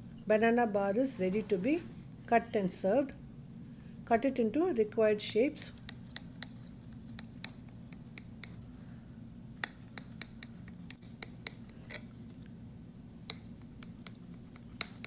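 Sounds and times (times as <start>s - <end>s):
low steady hum: 0.0s - 15.0s
knife clicking and scraping on plate: 9.6s - 12.1s, 13.3s - 15.0s.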